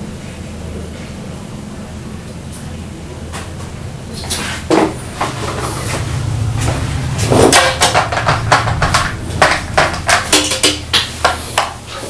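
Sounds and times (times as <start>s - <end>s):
steady low hum: 0.0s - 12.0s
chair and table knocking: 6.6s - 11.7s.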